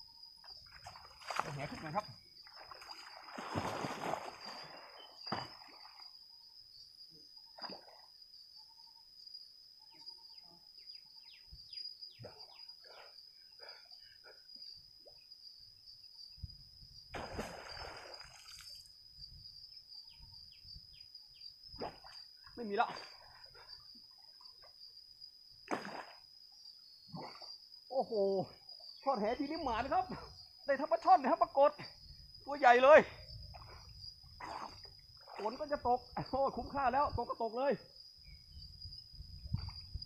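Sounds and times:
water splashing and sloshing: 0.6s - 6.1s, 17.2s - 18.9s, 25.7s - 26.2s, 33.5s - 35.8s.

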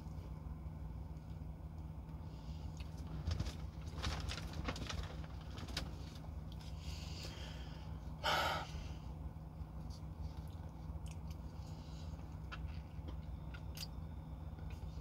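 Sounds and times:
low hum: 0.0s - 15.0s
chewing and finger-licking: 9.9s - 11.5s, 12.3s - 14.0s.

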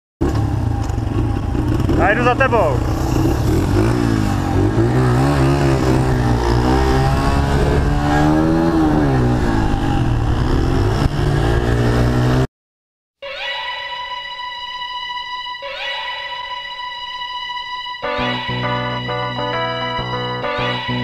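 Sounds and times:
dirt bike engine revving: 0.2s - 12.5s
wind noise: 5.8s - 11.7s.

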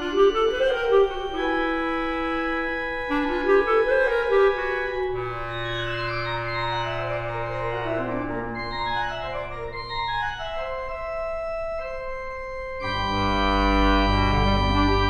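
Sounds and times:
bass clarinet melody: 0.0s - 12.1s, 12.8s - 15.0s
organ chords with deep bass: 4.2s - 15.0s.

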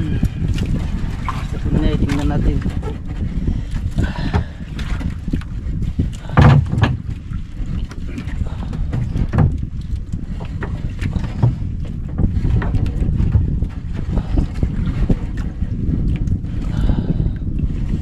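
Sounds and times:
wind buffeting microphone: 0.0s - 18.0s
sharp knocks: 6.3s - 7.0s.

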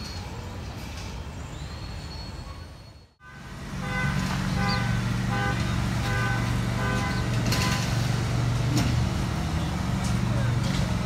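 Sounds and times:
vehicle engine running: 3.2s - 11.0s.

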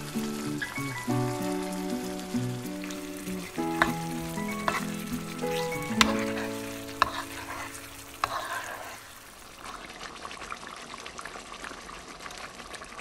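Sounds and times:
instrumental background music: 0.0s - 8.6s
food sizzling in a pan: 0.0s - 11.1s.

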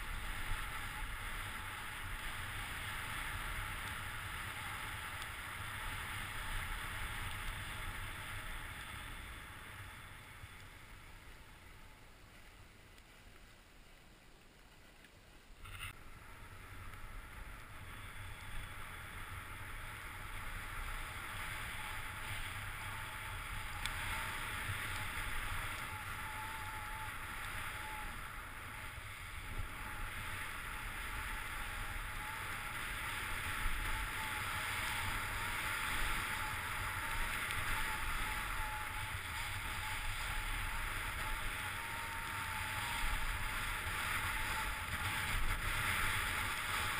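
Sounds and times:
skis hissing and scraping on snow: 0.0s - 11.6s, 15.7s - 46.9s
wind on microphone: 15.6s - 46.9s.

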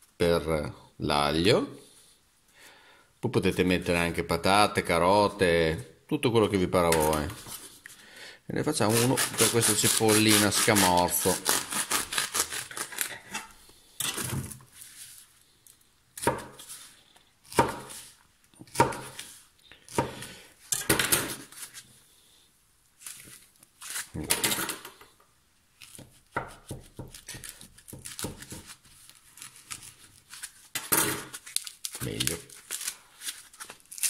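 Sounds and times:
knife cutting foam: 8.8s - 13.6s, 25.9s - 34.0s.

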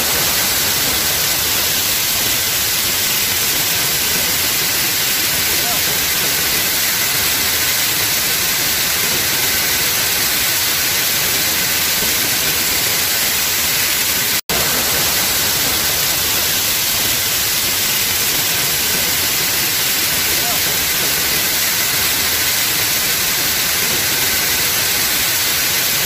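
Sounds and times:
waterfall rushing: 0.0s - 26.0s.

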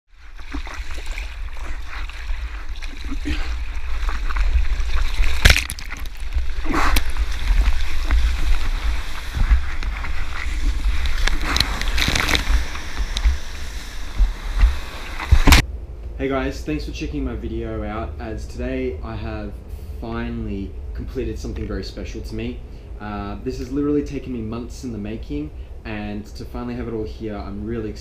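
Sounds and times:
water splashing over surfboard: 0.1s - 15.6s
steady low rumble: 0.1s - 28.0s.

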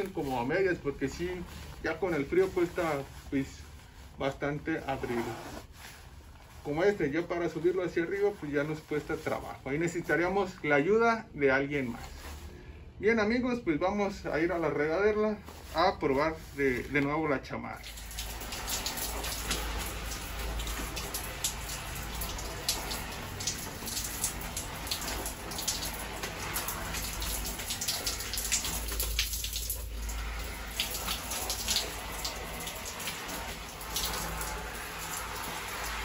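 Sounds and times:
shower spray on rain jacket: 0.0s - 10.6s, 11.8s - 12.5s, 14.3s - 17.2s, 17.8s - 36.0s.

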